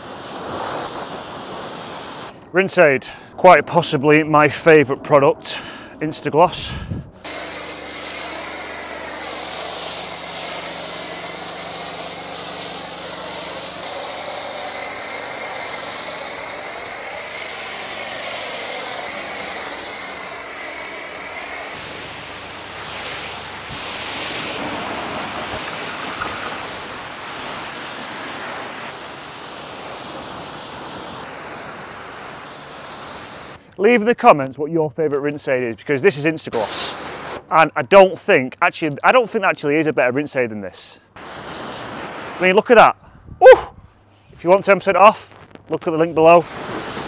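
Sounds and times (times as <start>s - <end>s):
pressure washer spray hissing: 0.0s - 2.4s, 7.2s - 33.7s, 36.6s - 37.5s, 41.1s - 42.8s, 45.8s - 47.0s
pressure washer motor hum: 0.0s - 2.5s, 7.2s - 33.6s, 46.0s - 47.0s.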